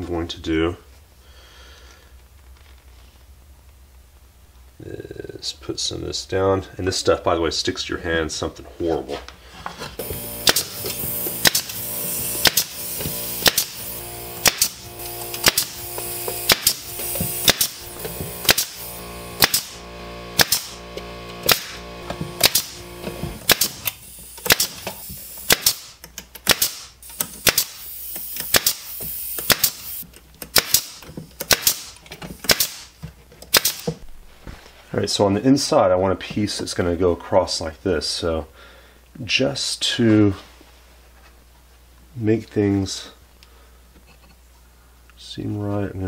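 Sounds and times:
pneumatic nail gun firing: 10.0s - 34.0s.

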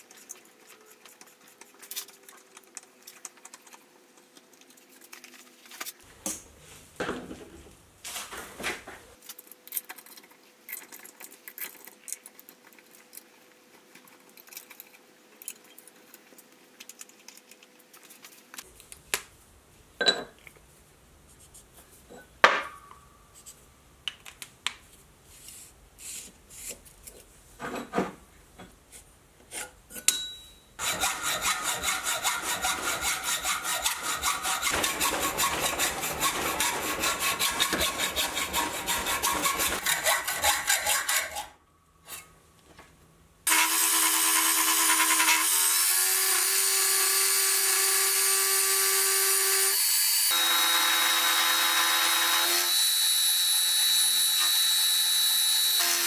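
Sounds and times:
hacksaw cutting metal: 30.1s - 41.6s, 43.5s - 56.0s.

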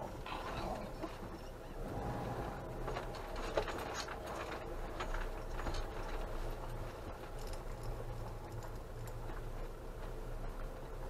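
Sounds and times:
low engine hum: 0.0s - 11.0s
light clicks and rattles: 2.8s - 10.8s.

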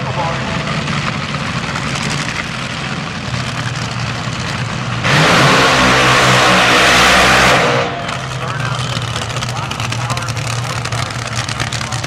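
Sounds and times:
dragster engine idling: 0.0s - 5.1s, 7.8s - 12.0s
dragster engine full throttle: 0.0s - 12.0s.

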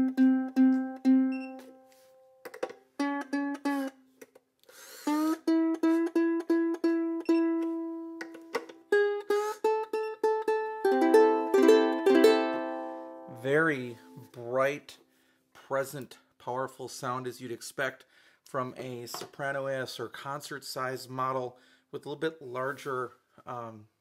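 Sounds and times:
ukulele chord strummed: 0.0s - 2.4s, 3.0s - 4.0s, 5.4s - 14.3s
ukulele strings plucked: 0.0s - 4.4s, 5.2s - 14.3s.

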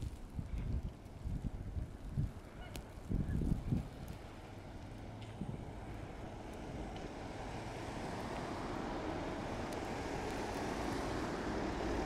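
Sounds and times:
tyres hissing in snow: 7.2s - 12.0s.

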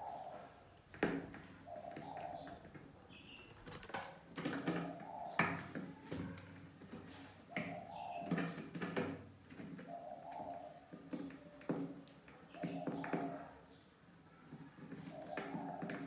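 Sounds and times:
bird cooing: 0.0s - 2.8s, 4.6s - 6.4s, 7.0s - 8.5s, 9.6s - 11.6s, 12.5s - 13.7s, 14.8s - 16.0s.

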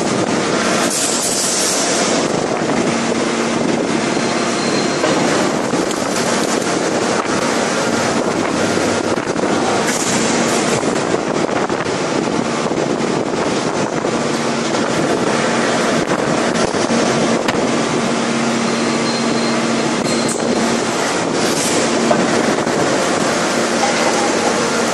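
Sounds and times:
hydraulic press machine noise: 0.0s - 24.9s.

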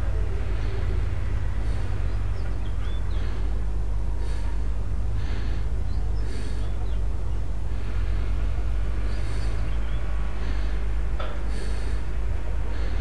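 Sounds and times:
steady low hum: 0.0s - 13.0s
person breathing through nose: 1.5s - 2.2s, 2.9s - 6.8s, 7.6s - 13.0s.

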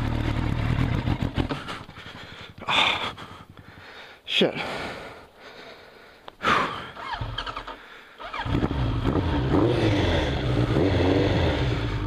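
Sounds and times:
motorcycle engine idling: 0.0s - 4.0s.

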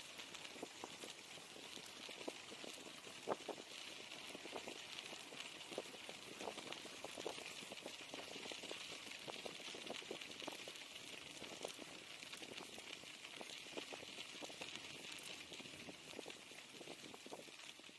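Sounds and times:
bicycle tyres crunching snow: 0.0s - 17.9s
steady hiss: 0.0s - 17.9s.

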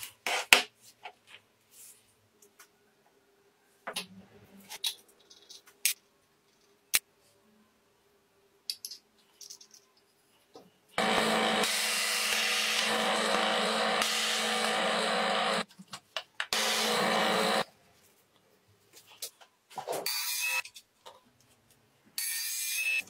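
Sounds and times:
small power tool running: 11.0s - 15.6s, 16.5s - 17.7s.

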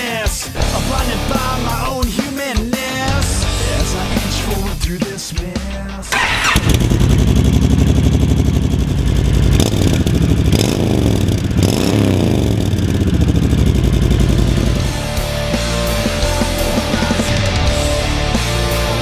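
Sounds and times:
motorcycle engine idling with throttle blips: 6.1s - 14.8s.

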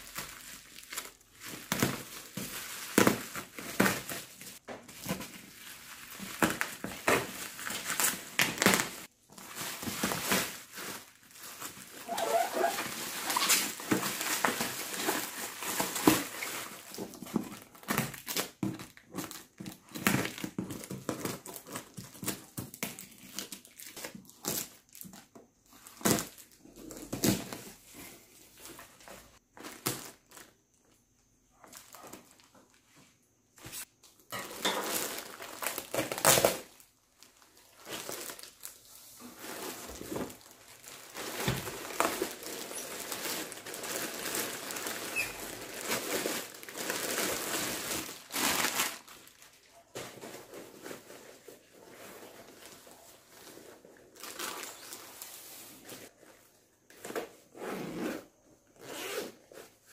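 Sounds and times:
plastic wrapping crinkling: 0.0s - 27.7s, 33.7s - 56.1s
cardboard ripping and knocking: 0.2s - 5.5s, 6.1s - 23.0s, 25.9s - 27.7s, 39.3s - 49.1s.

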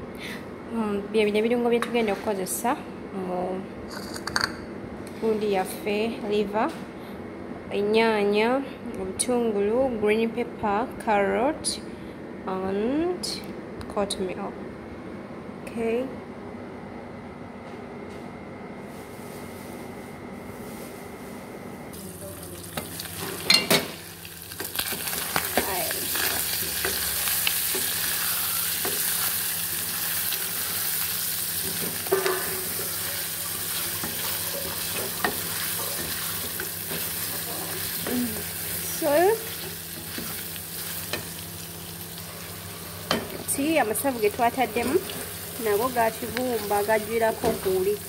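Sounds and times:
liver sizzling in a pot: 22.0s - 48.0s.

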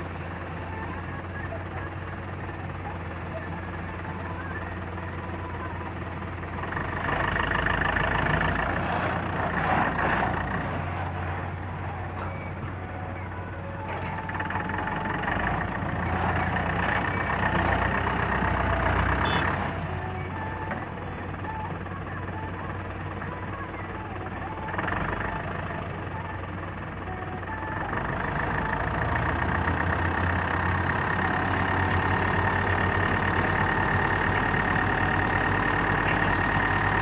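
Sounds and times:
diesel truck engine running: 0.0s - 37.0s
reversing alarm beeping: 19.2s - 19.6s.

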